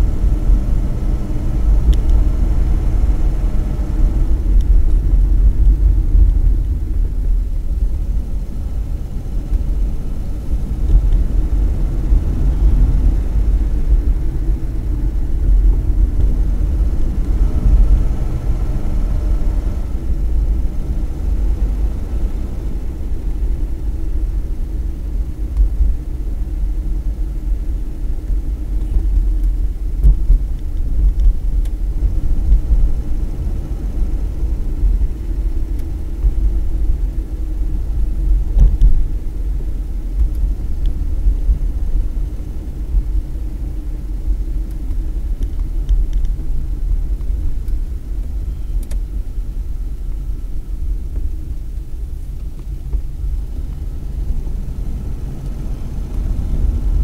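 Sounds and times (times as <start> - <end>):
car interior road rumble: 0.0 - 57.0
quiet car engine running: 0.0 - 57.0.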